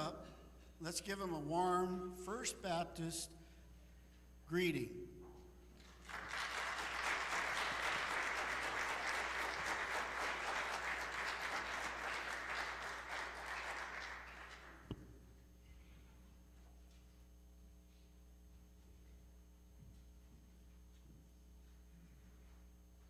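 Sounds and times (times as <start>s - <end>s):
congregation applauding: 5.8s - 14.9s.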